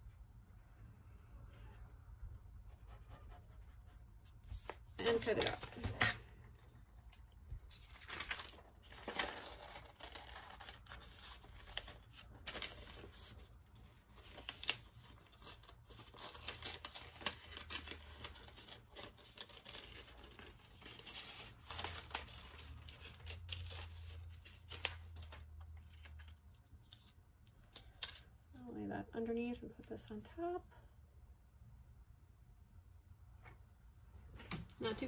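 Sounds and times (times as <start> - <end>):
paper rustling: 7.0 - 28.3
scissors cutting paper: 14.2 - 25.0.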